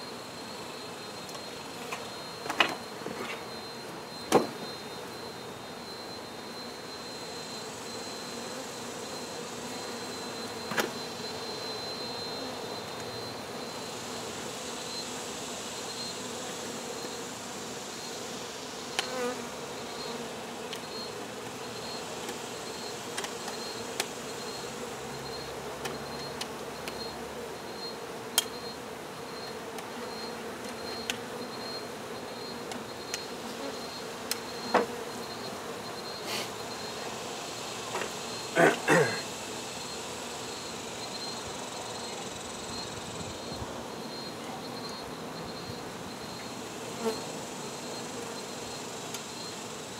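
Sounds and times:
honey bees buzzing: 0.0s - 49.9s.

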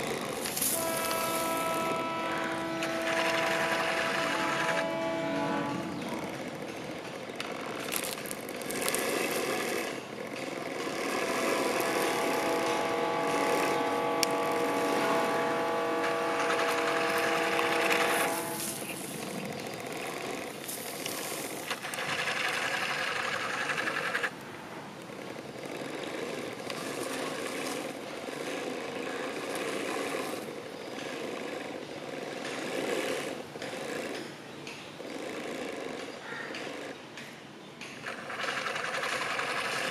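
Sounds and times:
hydraulic pump motor buzzing: 0.0s - 24.3s.

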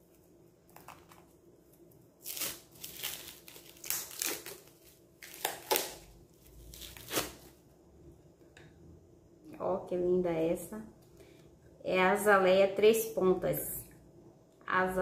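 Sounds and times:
plastic wrap crinkling: 0.0s - 7.6s.

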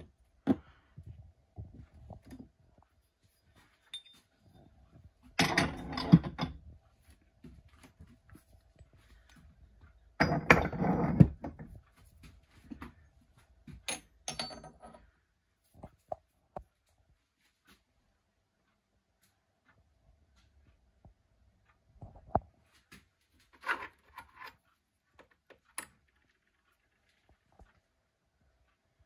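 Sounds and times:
metal ingots clinking and scraping: 3.4s - 4.6s, 13.9s - 15.0s.

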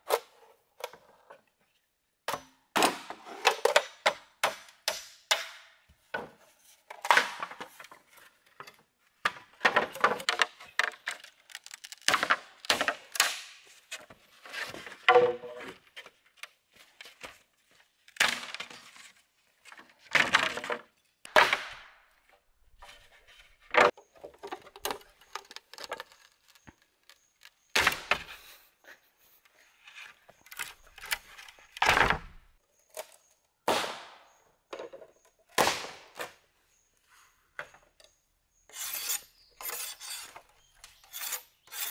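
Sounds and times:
bamboo being struck and split: 7.0s - 7.7s, 9.3s - 13.7s, 18.2s - 18.8s, 20.2s - 22.0s, 24.8s - 28.3s, 31.8s - 34.4s, 35.5s - 36.4s.

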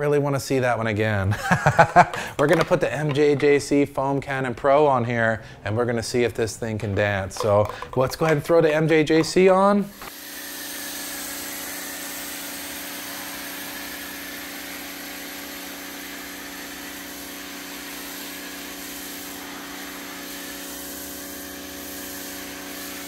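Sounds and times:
pressure washer humming: 9.9s - 23.0s
foam spraying hiss: 10.0s - 23.0s.

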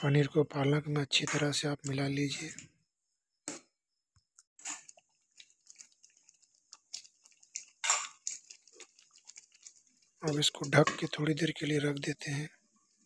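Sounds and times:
spatula stirring thick gravy: 4.6s - 13.0s.

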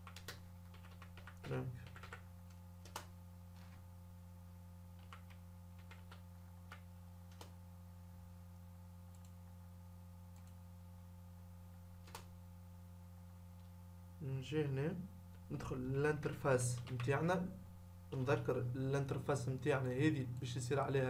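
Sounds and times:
keyboard keystrokes: 0.0s - 2.2s, 2.8s - 3.7s, 12.0s - 12.3s
low electrical hum: 0.0s - 21.0s.

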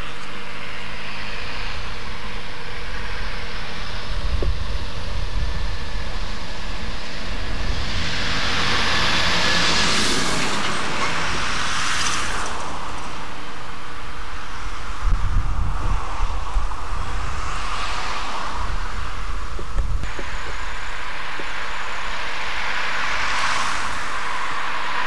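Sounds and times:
car tyre hiss: 16.0s - 25.0s.

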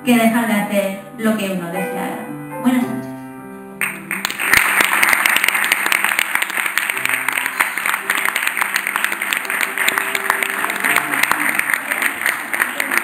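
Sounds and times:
soft background music: 0.0s - 13.0s
audience applauding: 3.8s - 13.0s.

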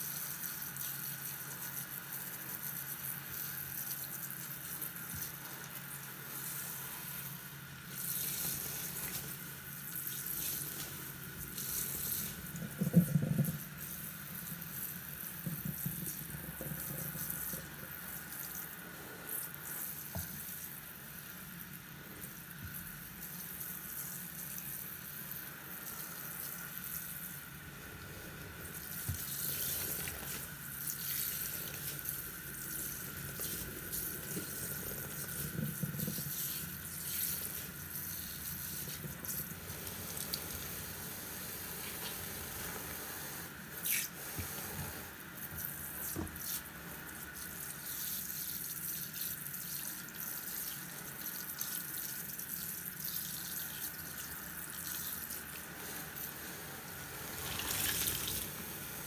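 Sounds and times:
tap water running: 0.0s - 59.0s
wet sponge squishing: 27.7s - 40.5s, 53.0s - 59.0s.

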